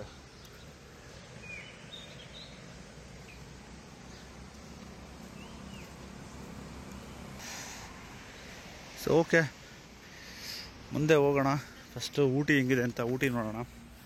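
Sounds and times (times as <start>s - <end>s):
bird chirps: 0.0s - 10.8s
outdoor rushing noise: 0.0s - 14.0s.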